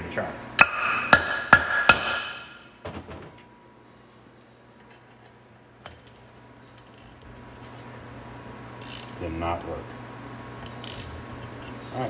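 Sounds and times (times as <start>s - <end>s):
hammer striking metal: 0.6s - 2.8s.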